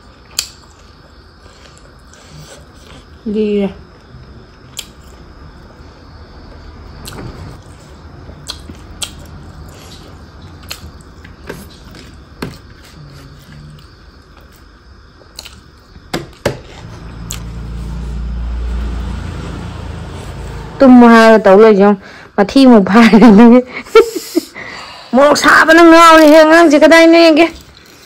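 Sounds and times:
chewing: 7.0s - 14.6s, 15.2s - 15.9s, 27.5s - 28.0s.

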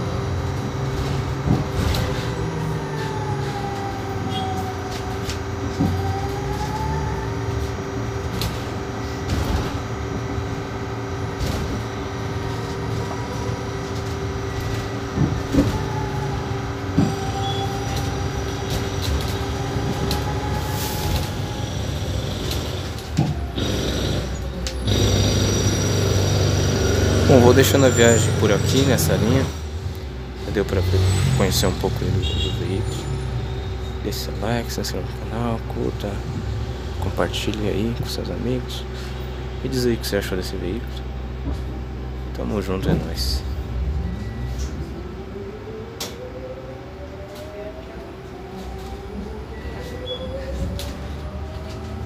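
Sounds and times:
bus cabin low rumble: 0.0s - 52.0s
electric motor whine: 2.0s - 27.7s.

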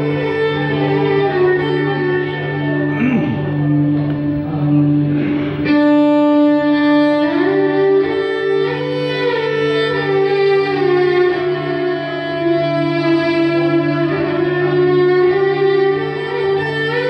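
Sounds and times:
steady low drone: 0.0s - 17.0s
violin improvisation with long bowed notes: 0.0s - 17.0s.

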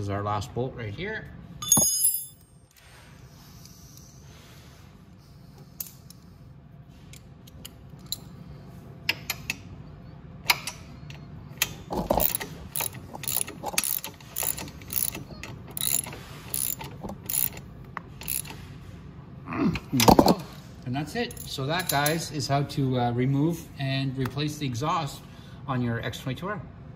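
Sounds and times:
ratchet wrench clicking: 10.5s - 18.6s.

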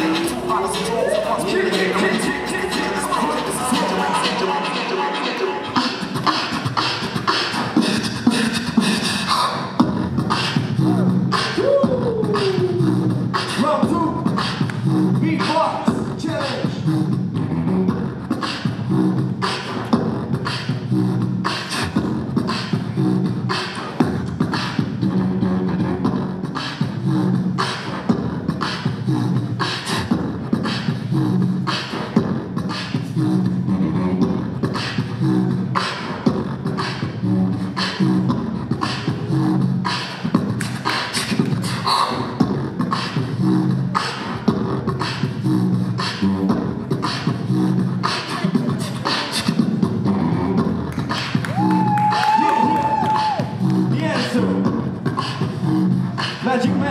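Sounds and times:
beatboxing hip-hop beat: 0.0s - 56.9s
hummed bass line: 9.8s - 40.7s, 49.5s - 52.0s, 52.7s - 56.9s.

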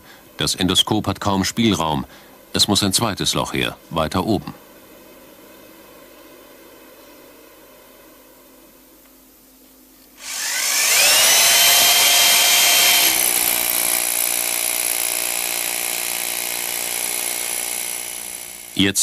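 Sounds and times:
electric drill boring into stone: 10.2s - 18.8s.

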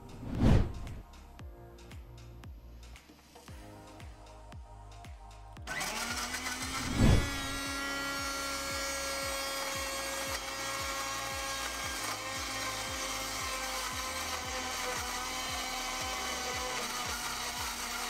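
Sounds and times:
background music with steady beat: 0.0s - 18.0s
blender motor running: 5.6s - 18.0s.

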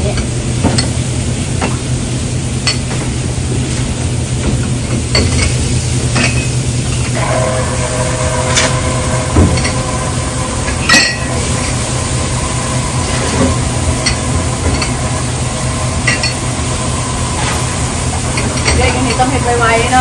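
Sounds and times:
steady low hum: 0.0s - 20.0s
dishes clinking: 5.0s - 7.4s, 10.6s - 11.8s, 13.0s - 17.6s, 18.3s - 19.6s
running water hissing: 5.4s - 20.0s.

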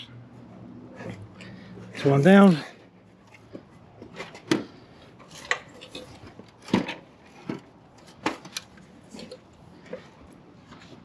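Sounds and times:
step ladder knocks and clinks: 3.5s - 10.1s.

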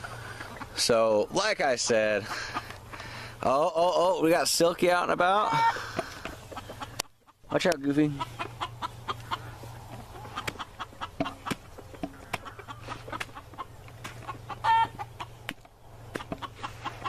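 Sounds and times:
chickens clucking: 0.0s - 17.0s
chicken squawk: 5.4s - 7.1s, 8.1s - 15.4s.

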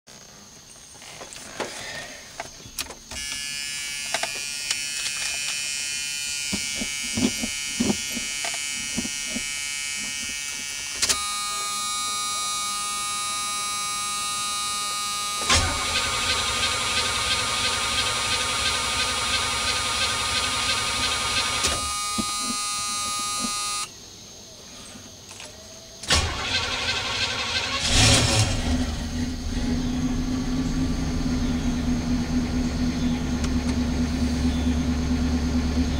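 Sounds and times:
high warning tone: 3.1s - 23.9s
car engine idling: 11.5s - 22.0s, 26.1s - 35.9s
car starter cranking: 15.4s - 23.6s, 26.0s - 35.9s.

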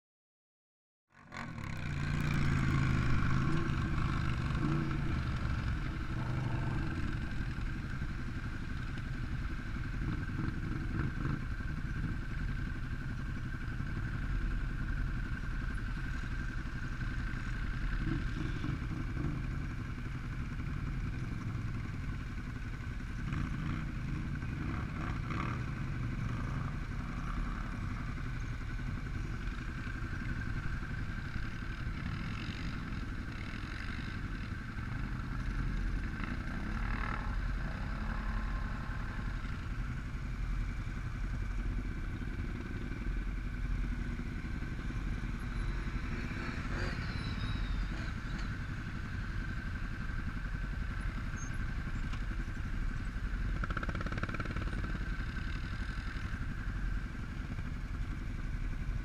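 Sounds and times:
quad bike engines running: 1.1s - 59.0s.

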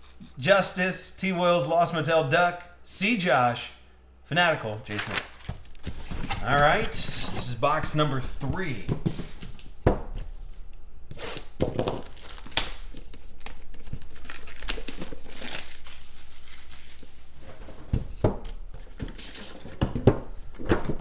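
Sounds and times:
plastic shrink wrap tearing: 12.0s - 17.0s.

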